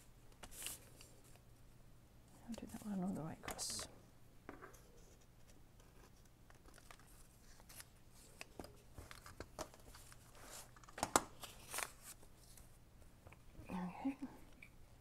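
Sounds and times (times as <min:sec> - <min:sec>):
paper rustling: 0:00.3 - 0:01.4, 0:05.0 - 0:12.7.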